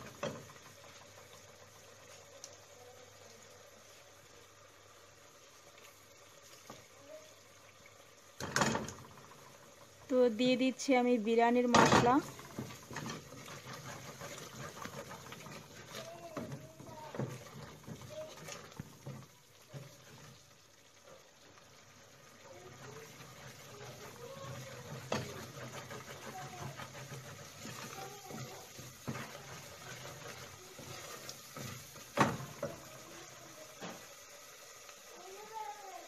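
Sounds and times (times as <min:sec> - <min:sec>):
paste sizzling and bubbling: 0:00.0 - 0:36.0
wooden spoon scraping a pot: 0:11.3 - 0:21.2, 0:22.4 - 0:34.2.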